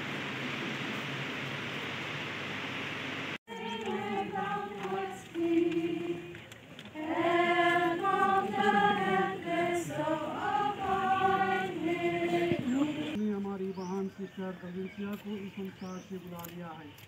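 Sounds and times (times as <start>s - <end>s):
group singing a slow hymn: 3.5s - 13.2s.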